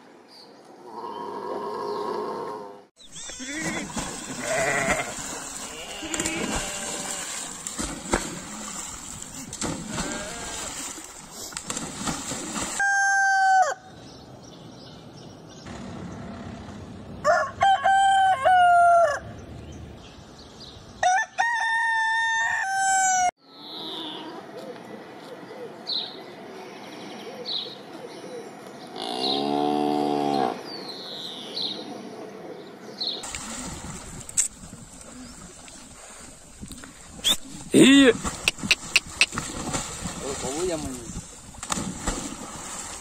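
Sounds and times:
sheep and goats bleating: 3.2s - 7.4s, 9.9s - 10.6s
splashing water: 3.2s - 12.9s, 33.2s - 43.0s
rooster crowing: 12.8s - 13.9s, 17.2s - 19.2s, 21.0s - 23.3s.

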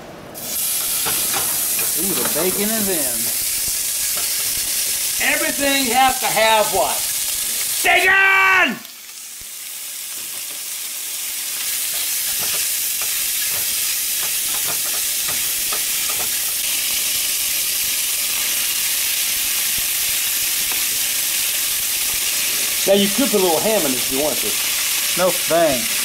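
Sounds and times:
bacon sizzling in a skillet: 0.4s - 26.0s
utensil scraping a pan: 0.6s - 2.9s.

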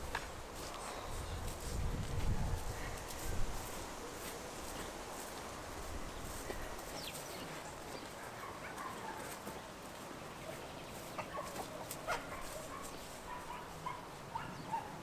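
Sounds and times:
chickens clucking: 5.8s - 14.7s.

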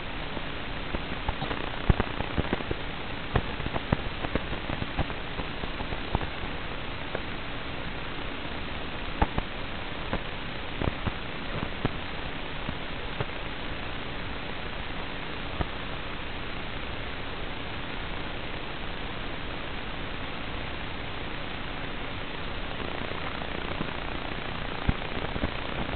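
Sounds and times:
static hiss: 0.0s - 25.9s.

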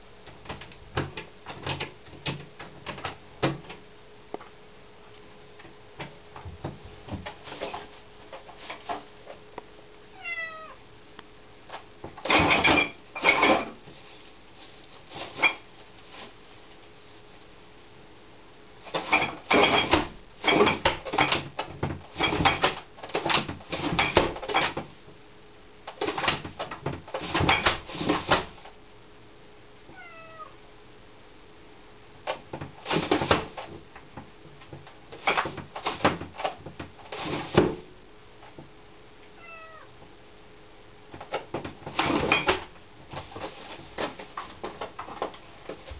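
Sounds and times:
cat meowing: 10.1s - 10.8s, 29.9s - 30.6s, 39.4s - 40.0s
plastic bags rustling and rattling: 41.5s - 45.9s.

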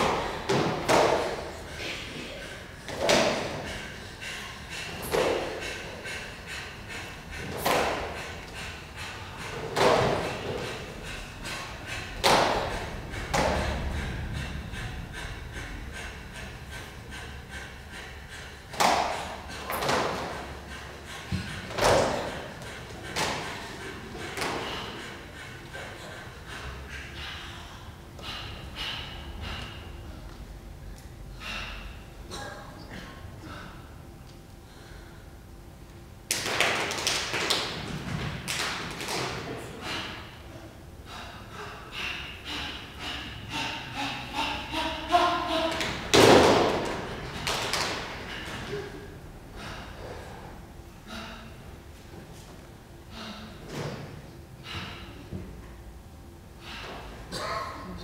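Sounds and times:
heavy thuds echoing in hall: 0.0s - 1.8s, 2.7s - 25.9s, 36.3s - 40.2s, 45.6s - 48.9s
low room rumble: 0.0s - 58.0s.

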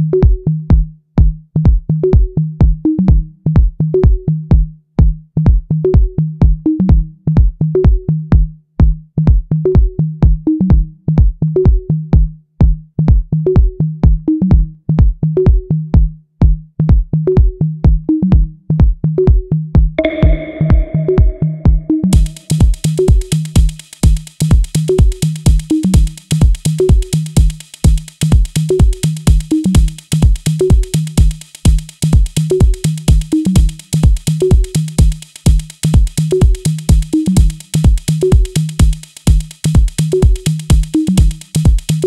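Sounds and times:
drum machine beat: 0.0s - 42.0s
repeating bass line: 20.0s - 42.0s.

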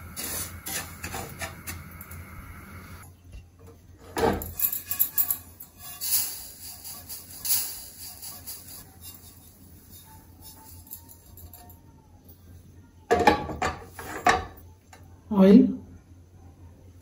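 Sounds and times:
loud scrape: 0.2s - 1.7s.

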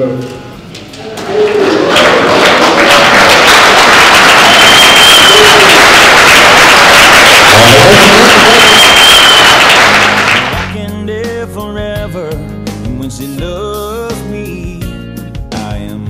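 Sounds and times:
crowd clapping and cheering: 0.7s - 10.8s
people shouting: 1.0s - 3.2s, 4.5s - 9.4s
high whistle: 4.5s - 9.9s.

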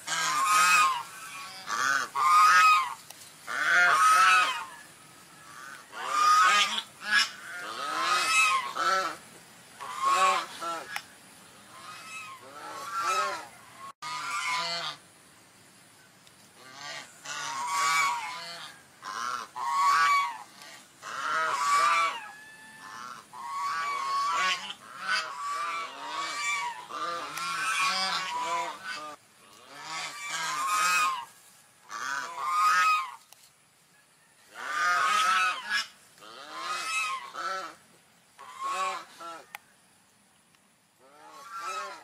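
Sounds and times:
swans calling: 0.0s - 15.1s, 16.6s - 33.3s, 34.5s - 39.6s, 41.0s - 42.0s.

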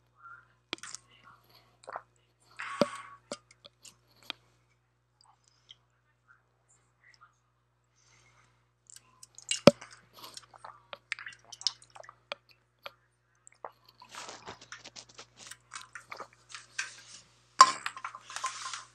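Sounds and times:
drink can crinkling: 14.0s - 18.9s.

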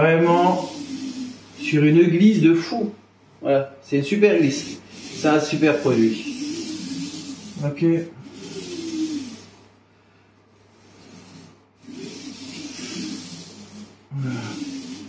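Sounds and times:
paint roller rubbing hiss: 0.0s - 15.0s.

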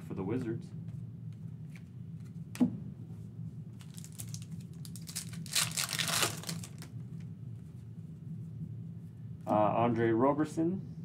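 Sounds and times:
foil wrapper tearing and crinkling: 3.8s - 6.9s.

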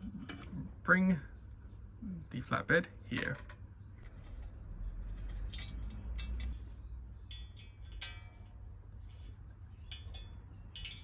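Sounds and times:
metal screws clicking and scraping: 3.2s - 8.5s, 9.2s - 11.0s
ringing metallic clink: 9.9s - 11.0s.

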